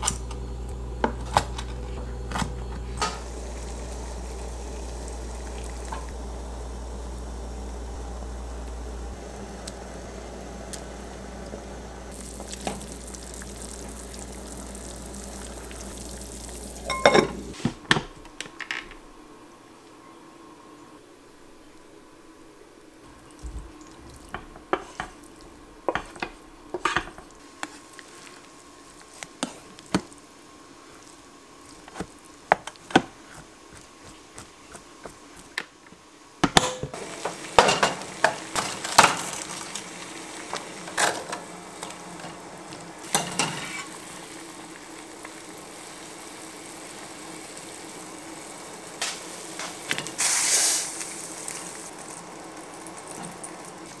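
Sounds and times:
water boiling hiss: 0.0s - 19.4s, 21.3s - 54.0s
kitchen clatter: 16.8s - 18.9s, 25.9s - 27.3s, 36.4s - 39.8s, 43.1s - 43.9s.

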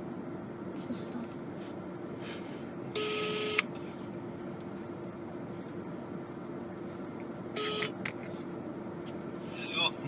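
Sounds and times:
car cabin hum: 2.7s - 10.0s
phone ringback tone: 3.0s - 3.6s, 7.6s - 7.9s.

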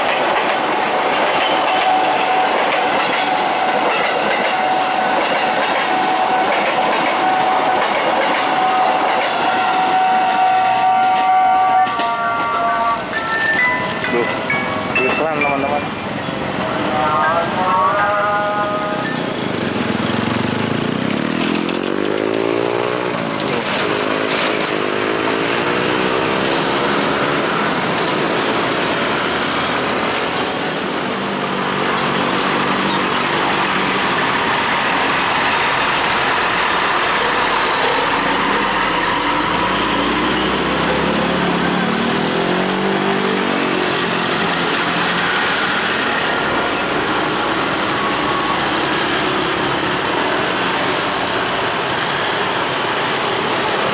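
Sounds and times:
steady traffic hum: 16.5s - 53.9s
engines revving and pulling away: 19.5s - 30.1s, 38.2s - 50.8s.

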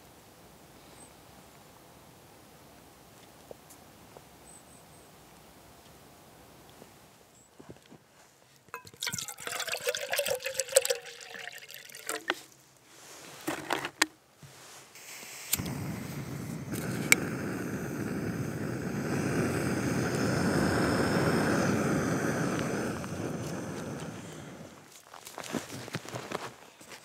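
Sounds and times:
clicks and rattles of handling: 13.4s - 14.2s
gas burner hissing: 14.9s - 24.9s
lighter click: 15.0s - 24.2s.

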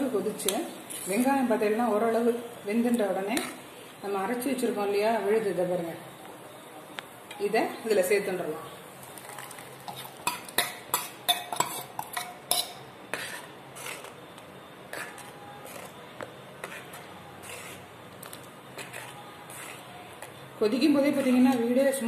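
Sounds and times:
spoon clinking against pot: 9.3s - 12.8s.

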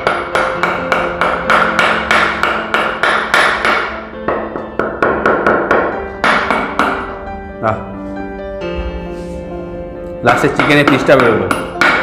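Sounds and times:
bamboo tube knocking: 0.0s - 7.1s.

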